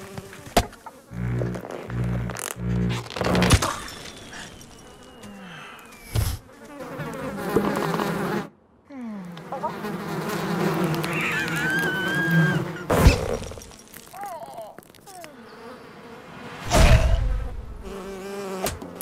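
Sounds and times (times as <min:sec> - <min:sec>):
continuous buzzing: 0:00.0 - 0:07.4.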